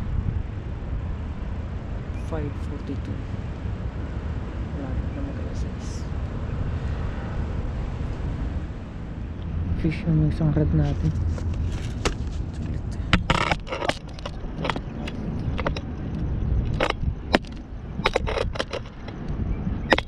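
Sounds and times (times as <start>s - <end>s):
low rumble: 0.0s - 20.0s
scraping rustle: 10.8s - 19.3s
sharp handling clicks and knocks: 10.9s - 20.0s.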